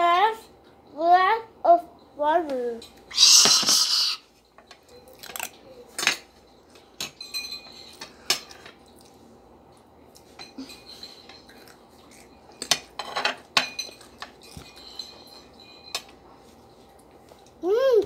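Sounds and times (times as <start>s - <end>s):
cutlery clinking on plates: 4.4s - 8.9s, 10.2s - 16.2s.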